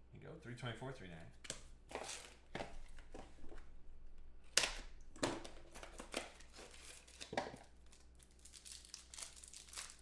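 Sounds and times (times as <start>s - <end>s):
plastic wrapping crinkling and tearing: 5.6s - 10.0s.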